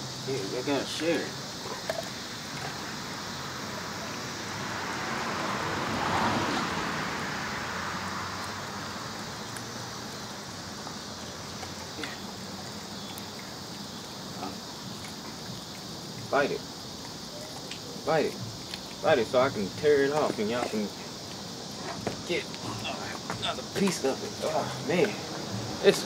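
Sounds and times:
vehicle passing on wet road: 3.4s - 11.8s.

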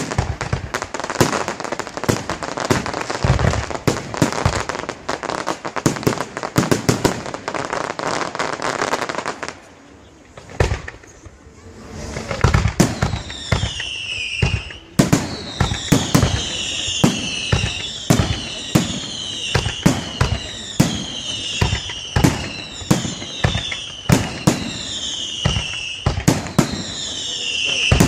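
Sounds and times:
firework bangs: 0.0s - 28.0s
falling firework whistles: 10.4s - 28.0s.

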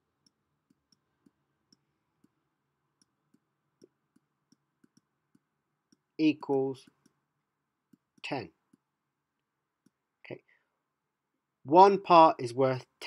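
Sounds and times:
stylus tapping pen tablet: 0.2s - 6.2s, 6.8s - 7.2s, 7.9s - 8.9s.

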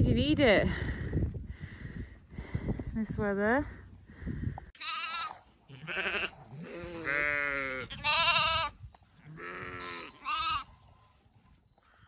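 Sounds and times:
sheep bleating: 4.8s - 11.2s.

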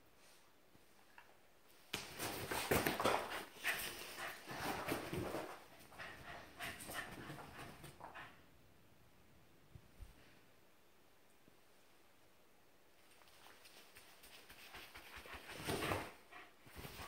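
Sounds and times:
scuffling and thumps: 1.9s - 5.8s.

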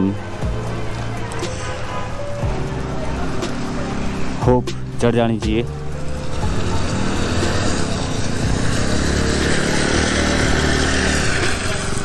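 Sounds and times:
scooter engine under throttle: 5.9s - 12.0s.

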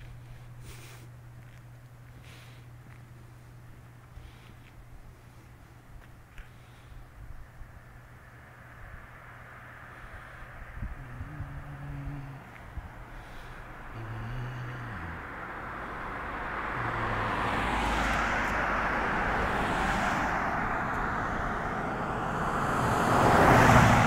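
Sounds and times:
car passing by: 8.3s - 11.2s, 12.2s - 24.0s.

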